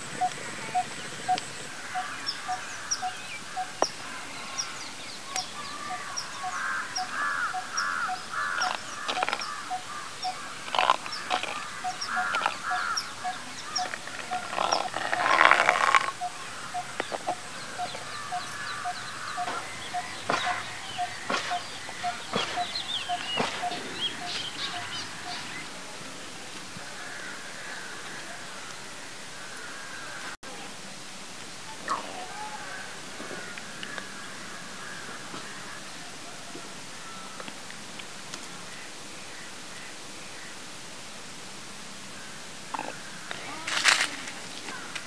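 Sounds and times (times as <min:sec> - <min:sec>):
bird repeating low note: 0:00.0 - 0:25.6
birds chirping and calling: 0:00.0 - 0:25.8.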